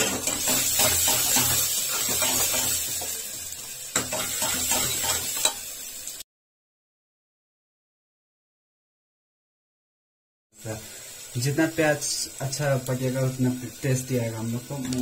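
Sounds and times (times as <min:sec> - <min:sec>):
onions sizzling in oil: 0:00.0 - 0:06.2, 0:10.6 - 0:15.0.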